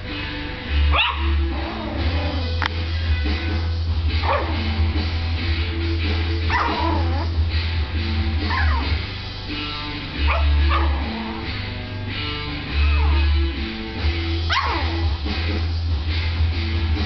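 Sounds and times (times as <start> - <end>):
guitar music: 0.0 - 17.0
small dog yapping: 0.9 - 2.1, 4.2 - 4.6, 6.5 - 7.3, 8.5 - 9.0, 10.3 - 11.2, 14.5 - 15.0.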